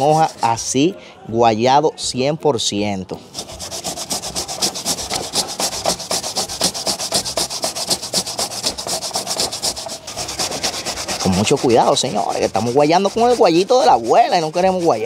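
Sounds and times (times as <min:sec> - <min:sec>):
vegetables rasping on metal grater: 0:03.3 - 0:15.0.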